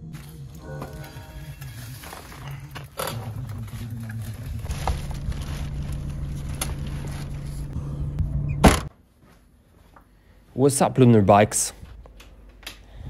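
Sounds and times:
low engine hum: 3.2 - 8.9.

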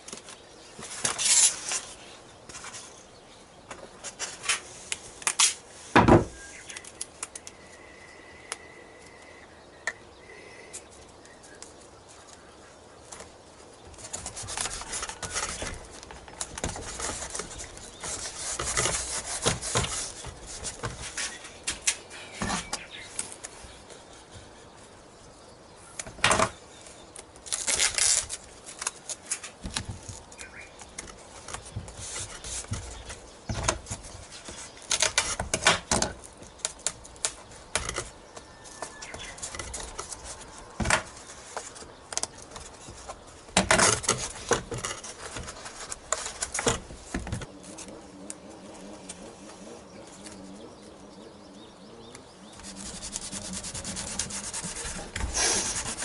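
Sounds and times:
adhesive tape crackling: 4.8 - 5.7, 6.6 - 7.6, 13.9 - 22.1, 27.1 - 50.5, 52.1 - 56.0.

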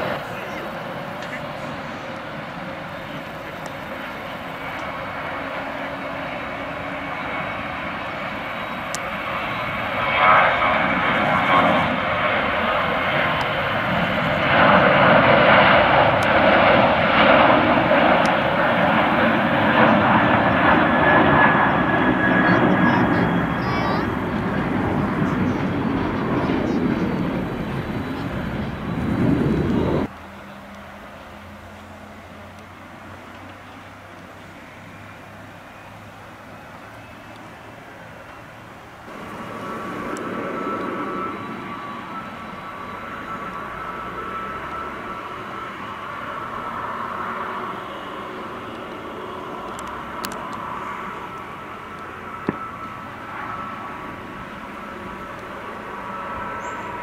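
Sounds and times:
jet engines whooshing with whine: 0.0 - 57.0.

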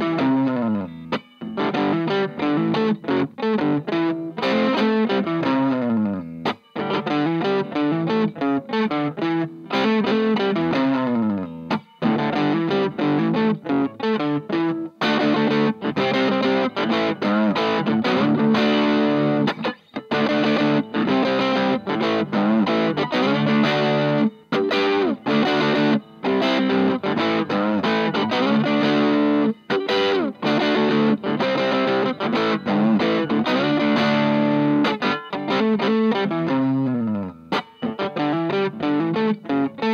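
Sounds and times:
overdriven electric guitar chords: 0.0 - 39.9.

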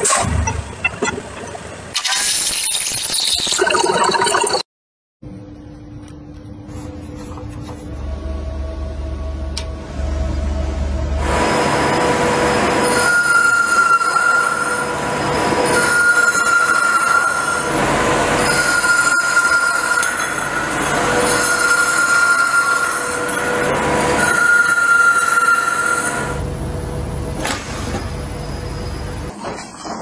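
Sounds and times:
high metallic squeal: 11.9 - 26.4.

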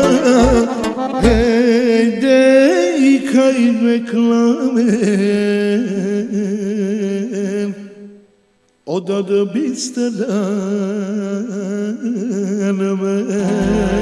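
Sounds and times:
drum beat: 0.0 - 1.4
sustained keyboard chords: 0.0 - 1.5, 13.6 - 14.0
man singing with vibrato: 0.0 - 14.0.

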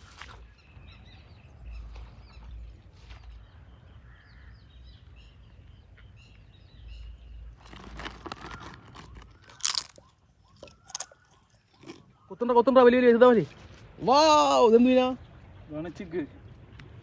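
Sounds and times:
small birds chirping: 0.0 - 17.0
rustling: 7.6 - 10.0.

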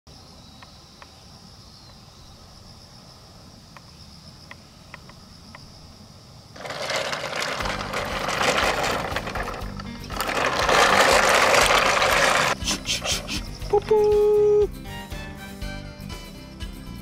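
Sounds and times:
high insect drone: 0.1 - 10.0, 11.7 - 14.8.

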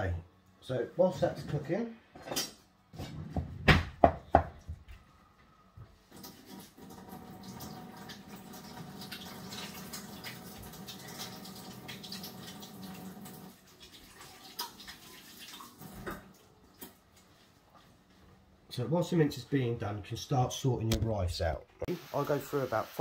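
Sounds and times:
kitchen tap running: 6.0 - 17.4.

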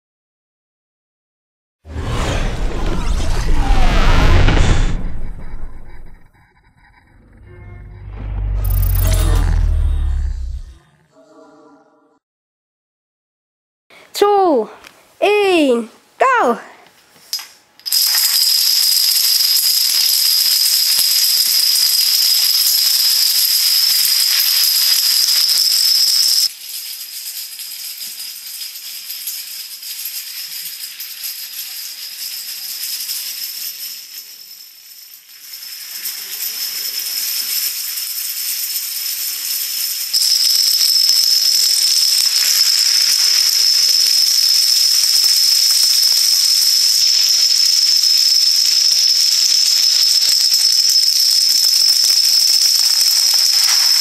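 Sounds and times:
high-pitched whine: 1.9 - 10.9
dominoes clattering: 17.3 - 54.0.

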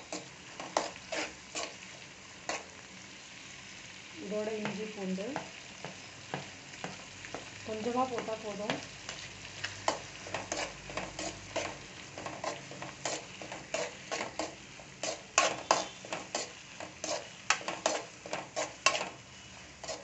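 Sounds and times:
spatula scraping metal pan: 0.0 - 1.8, 2.4 - 2.7, 9.8 - 20.0
light sizzle of frying: 0.0 - 20.0.

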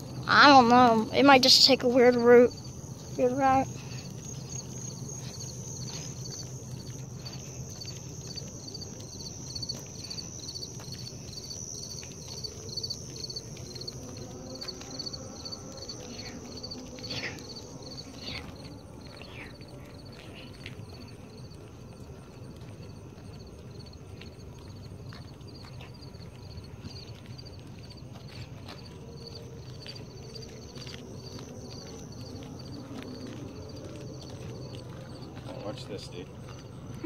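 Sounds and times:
high insect trill: 0.0 - 37.0
insects chirping: 0.0 - 37.0.

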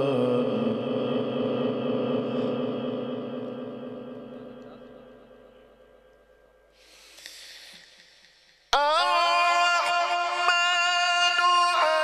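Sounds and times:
person reciting over loudspeakers: 0.0 - 6.4, 8.7 - 12.0
faint breathy hiss: 6.7 - 8.7.

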